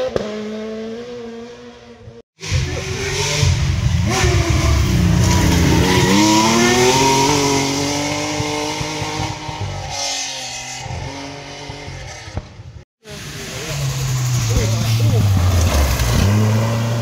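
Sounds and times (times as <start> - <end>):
rally car engine accelerating: 0.0 - 17.0
tyres rumbling on gravel: 13.4 - 17.0.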